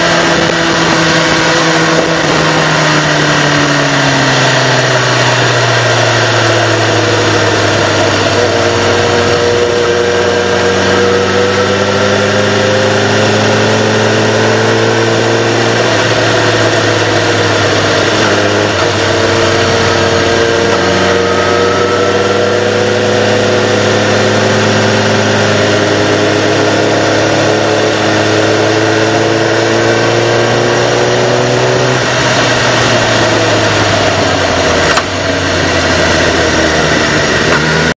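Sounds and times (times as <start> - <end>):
wind noise: 0.0 - 14.3
motorcycle engine accelerating: 0.0 - 37.9.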